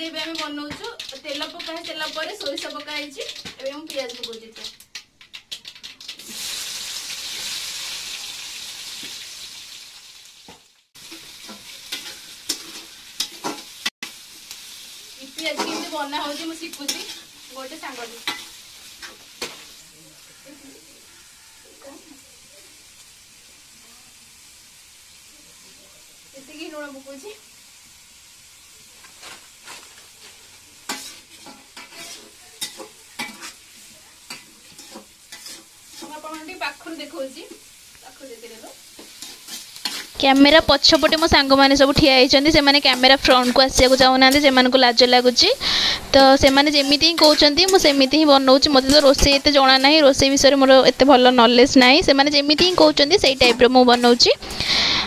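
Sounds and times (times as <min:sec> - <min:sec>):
onions sizzling in hot oil: 0:00.0 - 0:55.0
metal ladle stirring pan: 0:00.1 - 0:07.6, 0:15.2 - 0:19.8, 0:29.0 - 0:36.8, 0:38.8 - 0:55.0
metal spoon scraping pot: 0:30.9 - 0:33.6, 0:34.3 - 0:36.4, 0:46.4 - 0:50.0.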